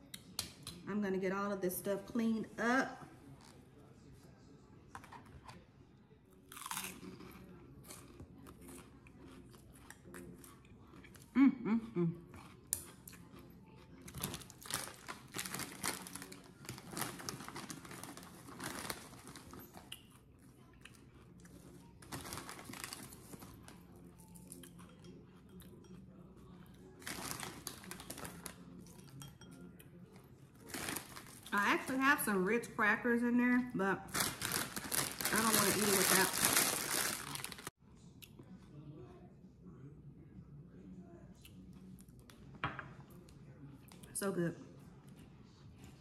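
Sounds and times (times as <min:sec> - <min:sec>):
crackers crunching: 0:06.5 - 0:11.3, 0:12.3 - 0:20.2, 0:20.8 - 0:24.8, 0:26.9 - 0:28.7, 0:30.6 - 0:31.9, 0:34.1 - 0:37.7
plastic bag crinkling: 0:14.1 - 0:19.8, 0:22.0 - 0:23.6, 0:27.0 - 0:28.5, 0:30.6 - 0:32.0, 0:34.1 - 0:37.7.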